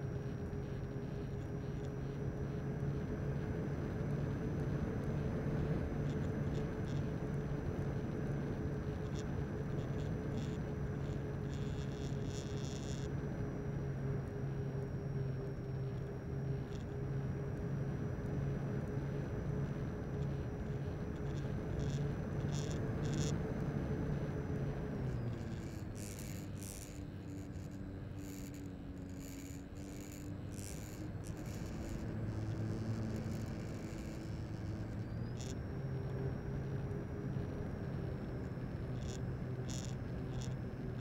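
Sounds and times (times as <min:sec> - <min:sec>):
electric motor droning: 0:00.0 - 0:41.0.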